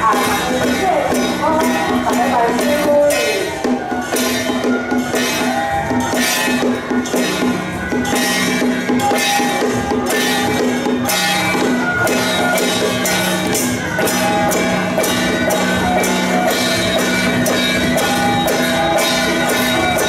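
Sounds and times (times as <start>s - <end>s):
drums and cymbals: 0.0s - 20.0s.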